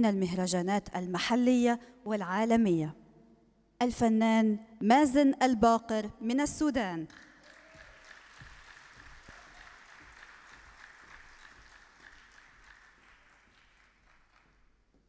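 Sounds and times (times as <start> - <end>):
audience applause: 7.2 - 14.6.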